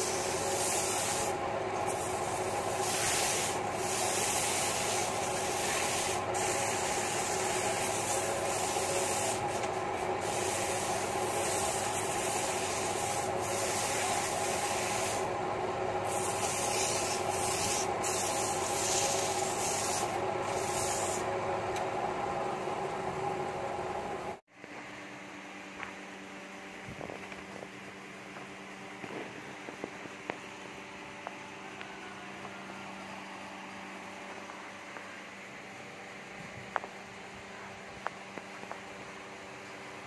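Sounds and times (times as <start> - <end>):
sandpaper rubbing spinning wood: 0.0 - 15.3, 16.0 - 21.3.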